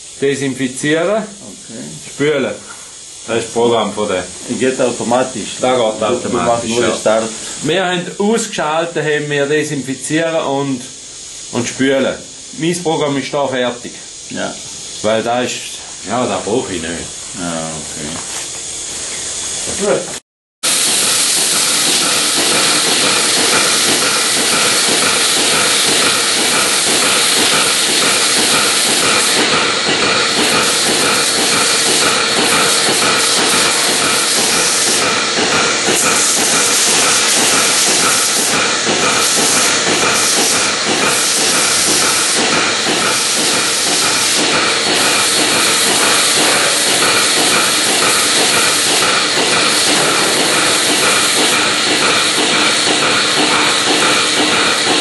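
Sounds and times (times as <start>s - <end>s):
water hose spraying: 0.0s - 8.0s, 20.6s - 55.0s
milking machine pulsing: 19.1s - 55.0s.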